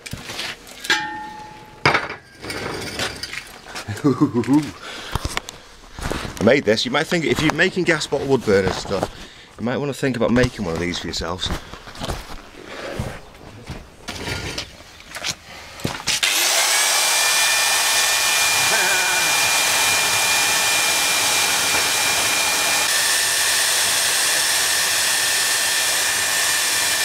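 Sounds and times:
angle grinder whining: 16.1s - 27.0s.

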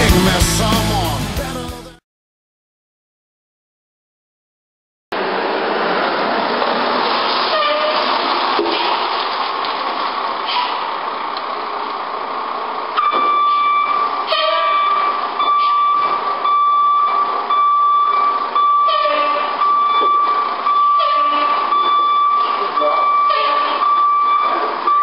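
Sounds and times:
diesel truck engine running: 0.0s - 1.8s, 5.2s - 25.0s
reversing alarm beeping: 13.0s - 25.0s.

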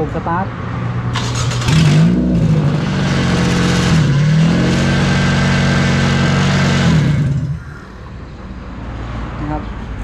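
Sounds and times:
car engine running: 1.2s - 8.0s.

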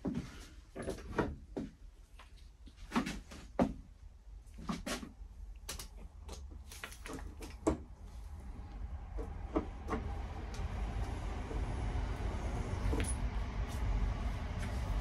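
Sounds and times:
low steady rumble: 5.2s - 15.0s.

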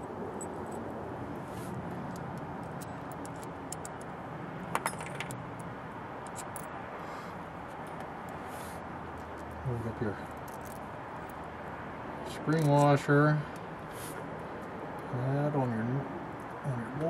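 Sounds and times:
metal fasteners clinking: 2.0s - 6.8s, 9.2s - 11.5s, 12.2s - 13.7s.

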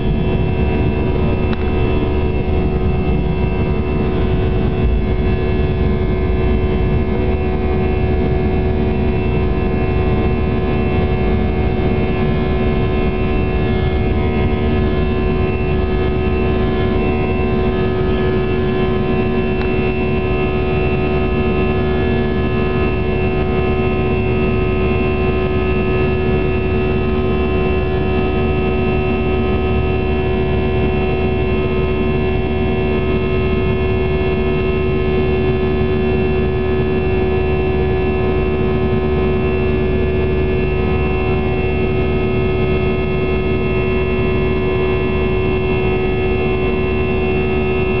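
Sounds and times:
jet engine rush in cabin: 0.0s - 48.0s.

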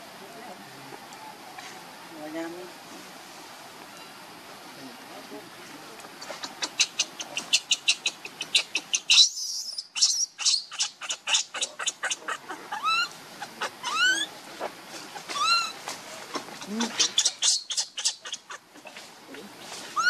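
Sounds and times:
infant monkey crying: 6.3s - 14.3s, 15.1s - 19.1s.

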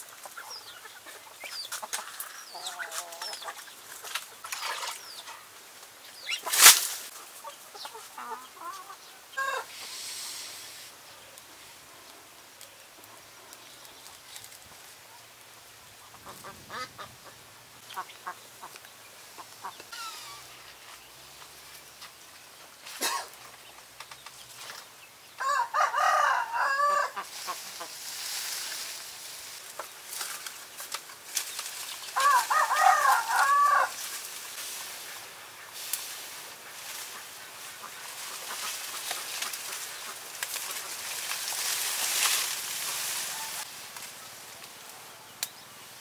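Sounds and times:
leaves rustling: 0.0s - 46.0s
rooster crowing: 25.4s - 27.2s, 32.2s - 34.0s.

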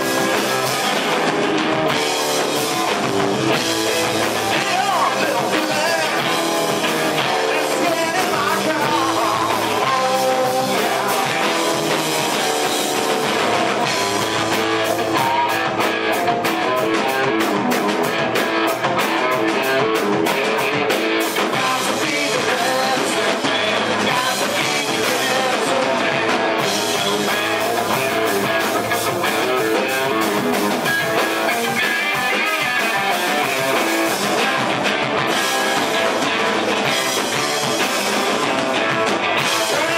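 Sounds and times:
electric guitar: 0.0s - 39.9s
rock band playing live: 0.0s - 39.9s
person singing: 3.5s - 17.5s, 19.0s - 39.9s.

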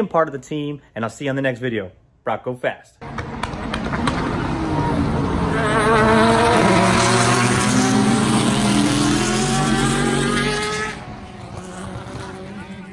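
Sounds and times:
car engine revving: 3.0s - 12.9s.

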